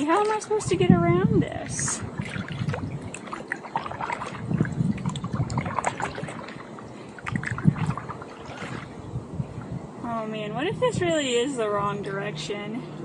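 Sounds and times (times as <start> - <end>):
water splashing and dripping: 0.0 - 9.8
paddle dipping into water: 1.6 - 9.8.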